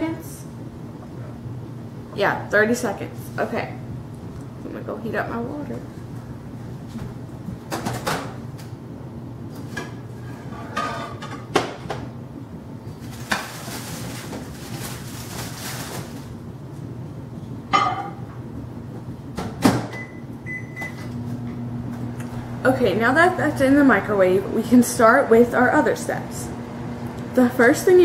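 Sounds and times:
microwave beeps: 19.9 - 21.2.

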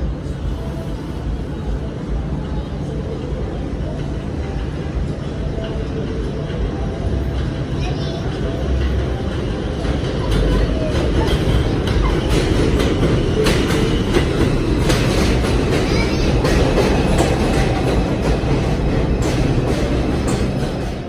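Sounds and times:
subway train rumbling: 0.0 - 21.0
wheels clacking over rail joints: 5.2 - 21.0.

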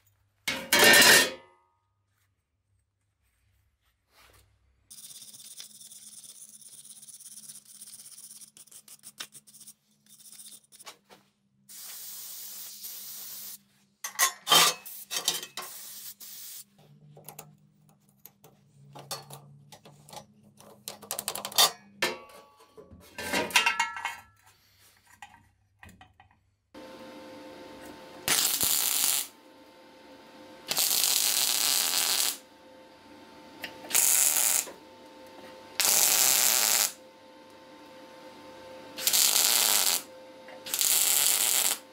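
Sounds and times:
steel tools clanking on table: 0.5 - 1.4, 21.5 - 24.3
welder humming: 26.8 - 41.9
welding crackle: 27.8 - 29.4, 30.6 - 32.5, 33.6 - 34.8, 35.8 - 37.0, 39.0 - 41.9.

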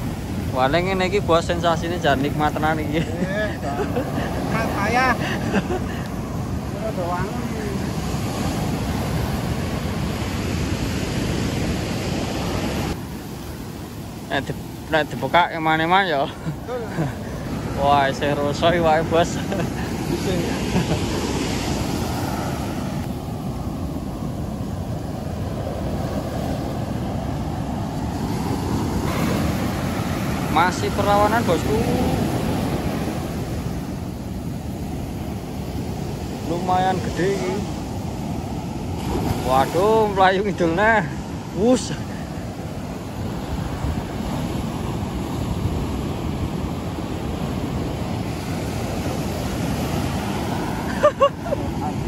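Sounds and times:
ocean surf breaking: 0.0 - 52.0
wind on microphone: 41.1 - 52.0.

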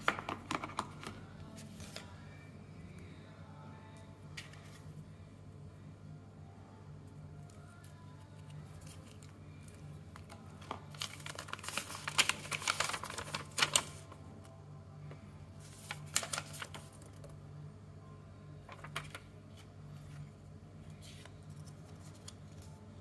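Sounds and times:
low steady hum: 0.0 - 23.0
paper crinkling: 7.6 - 14.2, 15.6 - 17.4, 18.7 - 20.3, 20.9 - 22.8.

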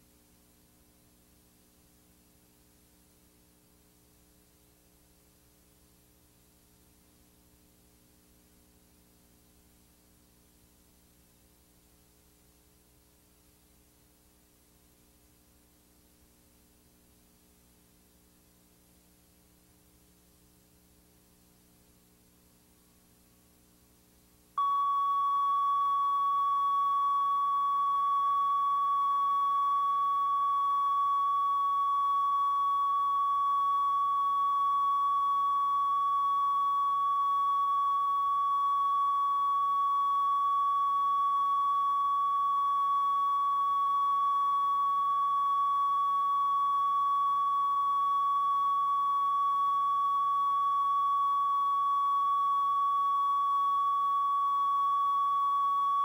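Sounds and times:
electronic test tone: 24.6 - 56.0.

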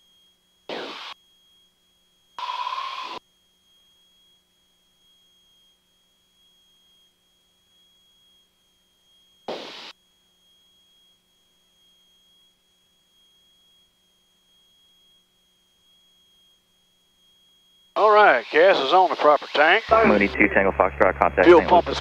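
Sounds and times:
high-pitched whine: 0.7 - 1.2, 17.2 - 22.0.

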